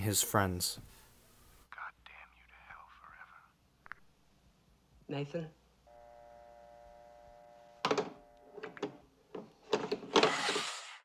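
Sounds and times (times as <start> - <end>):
telephone line tone: 5.9 - 8.8.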